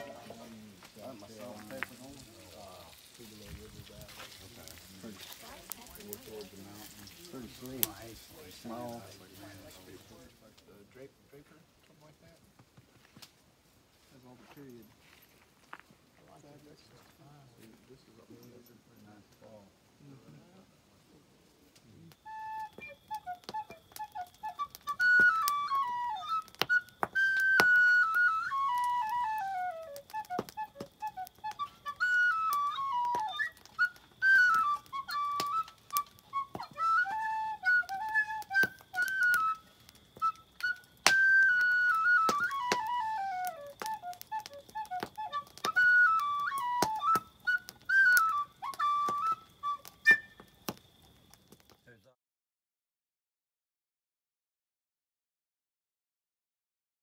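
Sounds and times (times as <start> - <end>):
whistle playing a tune: 0.0 - 5.0, 22.2 - 50.6.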